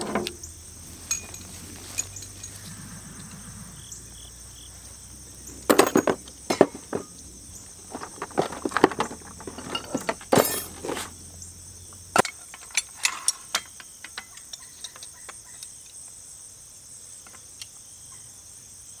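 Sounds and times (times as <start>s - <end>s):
clinks and knocks: 0.0s - 2.8s, 5.5s - 11.2s, 12.2s - 15.9s
insects trilling in grass: 0.0s - 9.8s, 10.8s - 19.0s.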